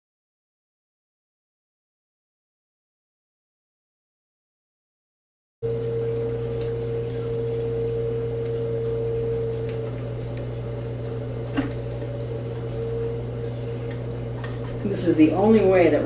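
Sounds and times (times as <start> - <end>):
steady hum: 5.6 - 16.0.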